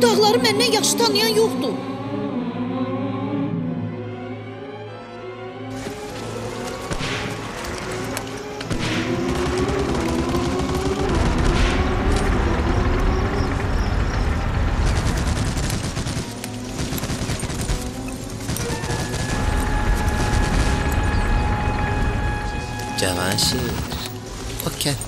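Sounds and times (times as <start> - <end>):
background music: 0.0 - 25.0
rapid machine-gun fire: 8.7 - 22.3
low rumble: 9.4 - 17.3.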